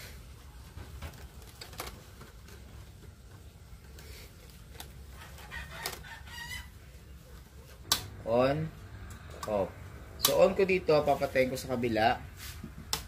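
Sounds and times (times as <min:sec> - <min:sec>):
chickens calling: 0:05.1 - 0:07.0.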